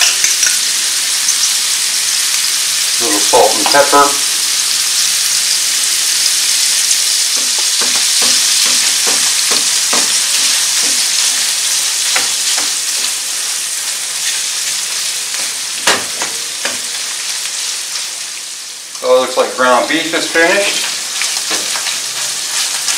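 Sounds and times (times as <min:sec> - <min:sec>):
meat sizzling in a frying pan: 0:00.0 - 0:22.9
knock on a pan: 0:07.4 - 0:10.2, 0:15.8 - 0:16.8.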